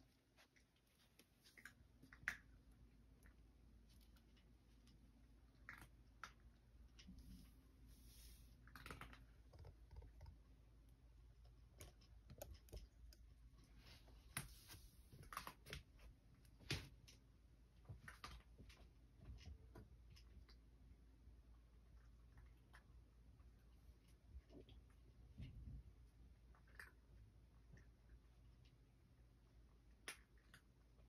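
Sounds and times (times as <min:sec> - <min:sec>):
low room hum: 0:00.0 - 0:31.0
cat chewing food: 0:26.2 - 0:31.0.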